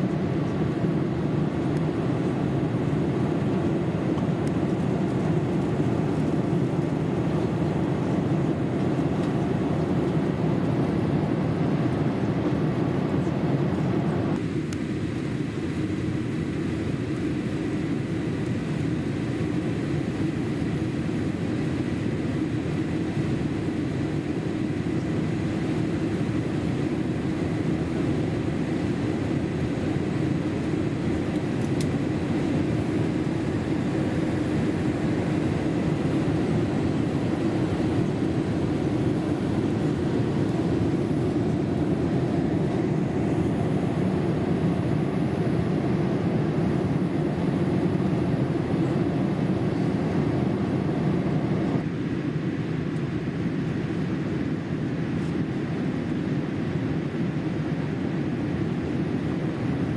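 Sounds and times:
airliner cabin noise: 0.0 - 59.9.

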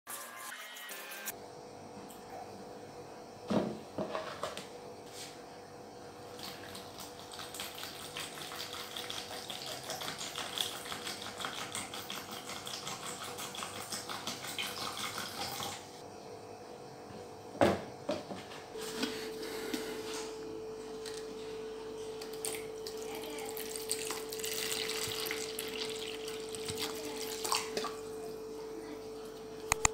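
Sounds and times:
liquid pouring into plastic cup: 22.3 - 28.0.

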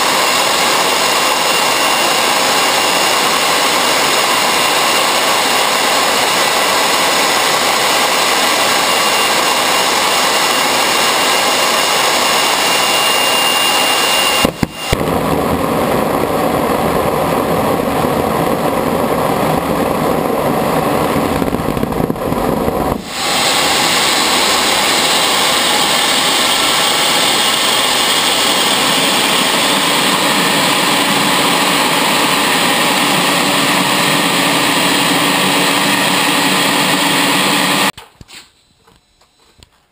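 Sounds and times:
afterburner rough roar: 0.0 - 37.9
jet engine rushing: 0.0 - 38.0
faint high whistle: 12.5 - 15.0, 38.4 - 39.6.

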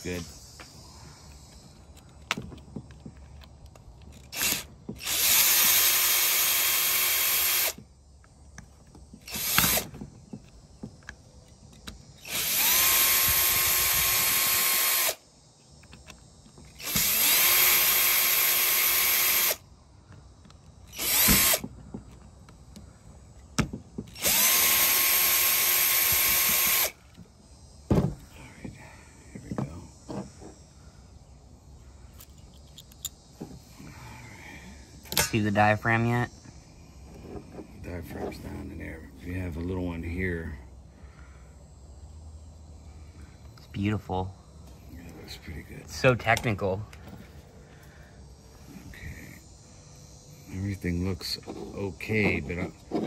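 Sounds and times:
cordless drill whining: 4.2 - 7.8, 9.2 - 10.0, 12.2 - 15.2, 16.0 - 19.6, 20.9 - 21.8, 24.1 - 27.2
drill trigger blips: 4.3 - 7.8, 16.7 - 19.6, 20.9 - 21.6, 24.1 - 27.0.

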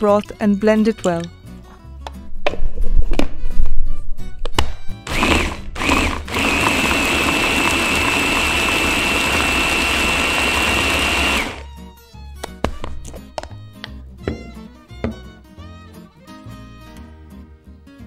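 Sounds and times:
electric blender whirring: 5.0 - 11.7.

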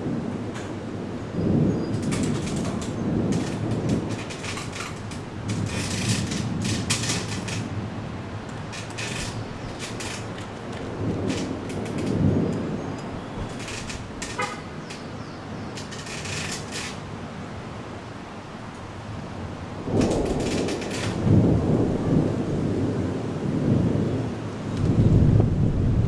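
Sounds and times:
distant thunder rumble: 0.0 - 17.1, 19.1 - 26.0
crackling wind gusts: 0.0 - 26.0
rain hiss: 0.0 - 26.0.

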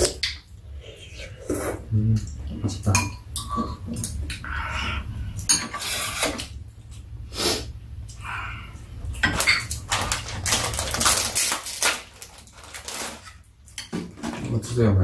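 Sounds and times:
plastic packet crackling: 9.8 - 13.4.

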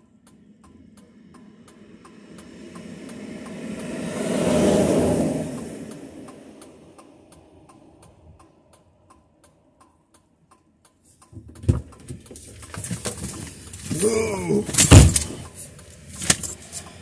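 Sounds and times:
roadside noise: 0.0 - 17.0
thump: 11.4 - 13.4, 14.7 - 15.4.

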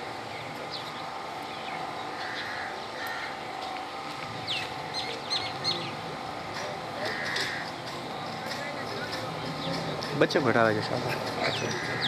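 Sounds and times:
outdoor gathering noise: 0.0 - 12.0
bird chirps: 4.4 - 6.1.

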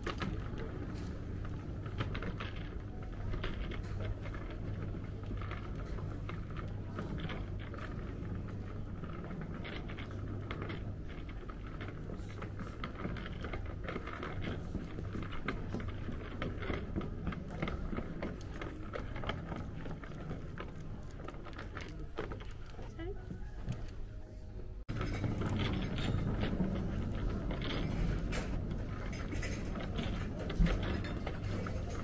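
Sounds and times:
light clicks and clatter: 0.0 - 24.0, 24.9 - 32.0.

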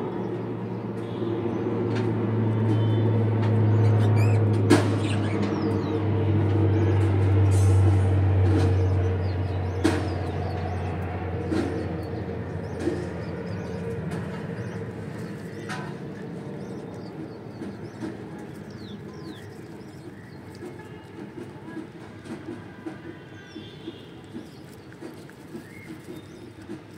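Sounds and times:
budgerigar chick chirps: 3.8 - 5.8.

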